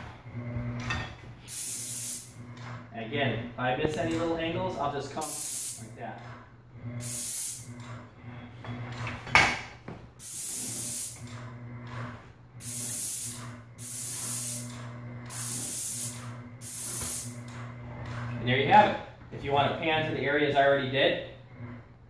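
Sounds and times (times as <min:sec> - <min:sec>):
paint sprayer hissing: 0:01.4 - 0:02.8, 0:05.2 - 0:06.0, 0:07.0 - 0:07.8, 0:10.2 - 0:11.4, 0:12.6 - 0:17.6.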